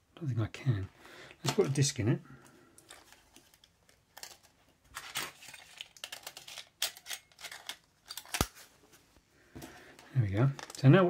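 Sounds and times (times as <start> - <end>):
small plastic clicks and rustles: 2.4 - 8.6, 10.0 - 10.9.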